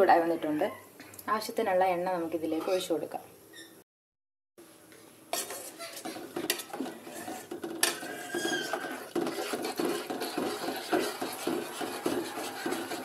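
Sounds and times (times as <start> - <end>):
metal pan and utensils clattering: 5.3 - 13.0.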